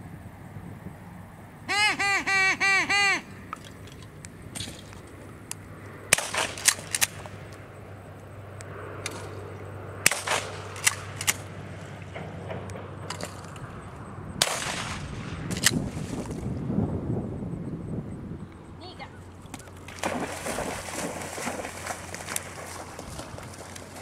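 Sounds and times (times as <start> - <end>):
shotgun firing: 6.1 - 7.2, 10.0 - 11.4, 14.4 - 15.7.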